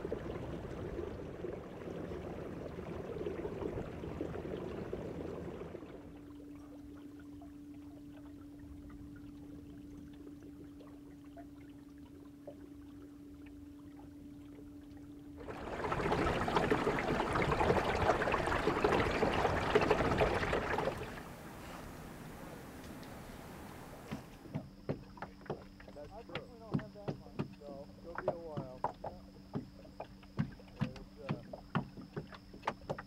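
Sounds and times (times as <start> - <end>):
water splashing and trickling: 0.0 - 24.3
faint steady hum: 0.0 - 33.0.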